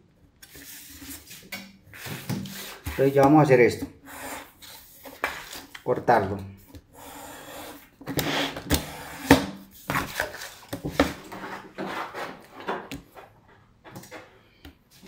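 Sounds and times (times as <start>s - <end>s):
paper rustling: 9.8s - 14.3s.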